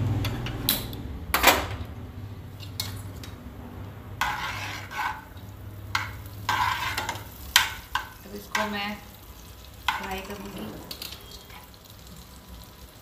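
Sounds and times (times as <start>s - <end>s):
spatula scraping frying pan: 4.0s - 11.8s.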